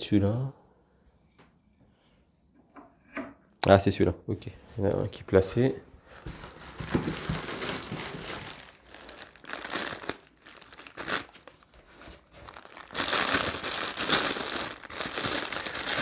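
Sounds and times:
packaging crinkling and rustling: 0:06.2 - 0:16.0.

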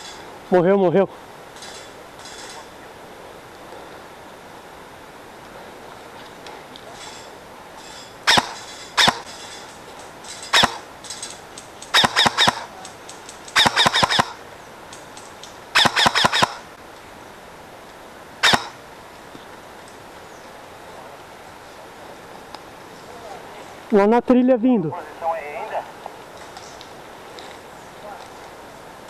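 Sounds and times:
airsoft rifle shots: 0:08.2 - 0:09.3, 0:10.5 - 0:10.9, 0:11.9 - 0:12.8, 0:13.5 - 0:14.4, 0:15.7 - 0:16.7, 0:18.4 - 0:18.8.

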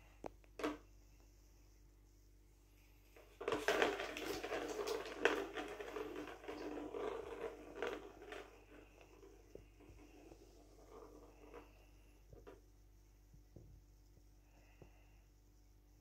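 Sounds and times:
plastic ball rattling around track: 0:03.2 - 0:12.6.

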